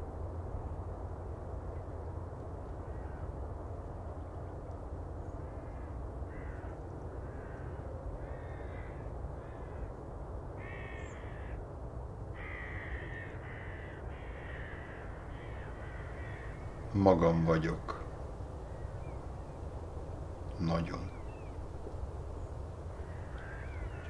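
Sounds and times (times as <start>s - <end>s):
crows cawing: 2.8s - 3.4s, 5.4s - 10.0s, 10.6s - 11.6s, 12.3s - 24.0s
steady low rumble: 10.1s - 24.0s.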